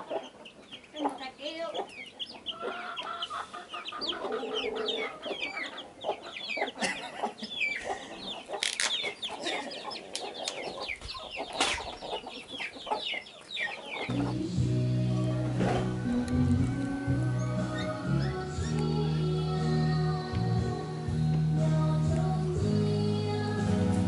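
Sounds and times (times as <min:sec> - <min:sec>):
chickens clucking: 0:00.0 - 0:21.4
background music: 0:14.1 - 0:24.0.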